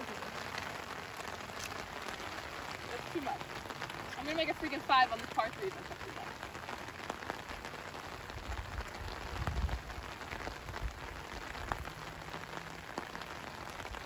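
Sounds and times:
heavy rain: 0.0 - 14.0.

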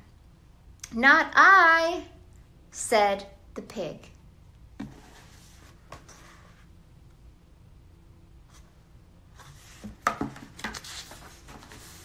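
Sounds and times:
book knocking on table: 4.8 - 5.0
rustle of book pages: 9.3 - 12.0.

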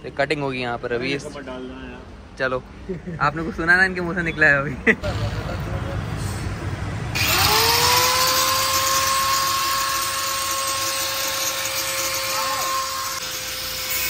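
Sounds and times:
angle grinder whine: 7.1 - 14.0.

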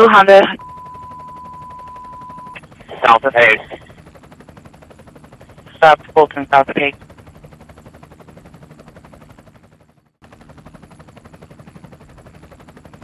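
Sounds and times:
radio audio: 0.0 - 0.8, 2.4 - 3.9, 5.7 - 7.0
helicopter rotor pulsing: 0.0 - 13.0.

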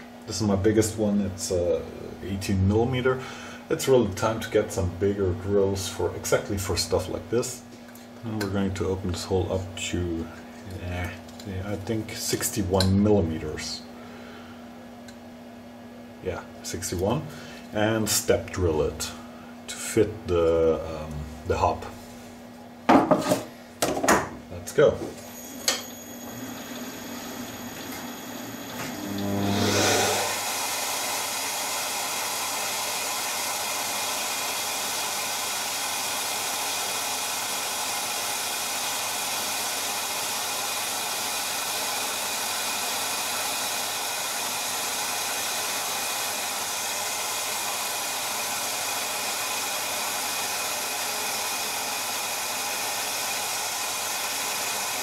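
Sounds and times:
shop vacuum motor running: 0.0 - 15.3, 23.0 - 55.0
lathe turning: 25.2 - 55.0
cutter feeding into blank: 28.8 - 31.5.

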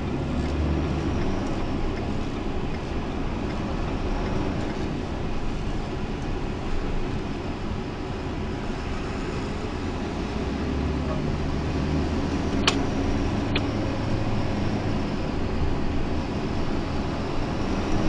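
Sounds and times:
vehicle engine and road noise: 0.0 - 18.0
sharp clicks: 12.5 - 12.9.

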